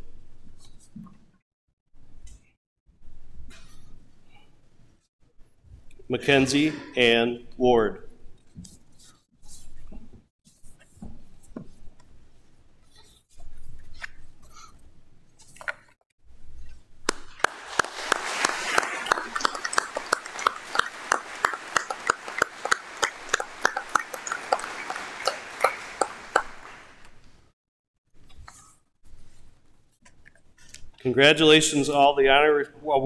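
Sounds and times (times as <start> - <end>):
audience applauding: 17.1 - 27.2.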